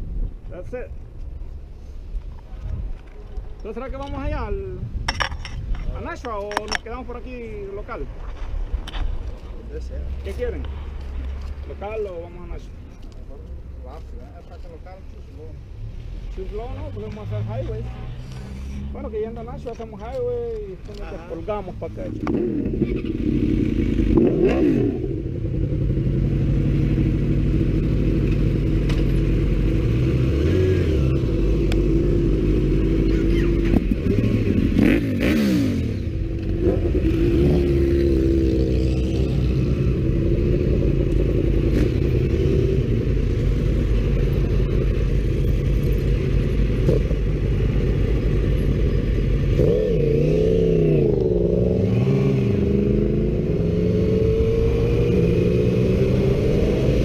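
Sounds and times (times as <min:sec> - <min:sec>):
motorcycle engines idling: 0:19.4 - 0:35.0, 0:37.9 - 0:51.6.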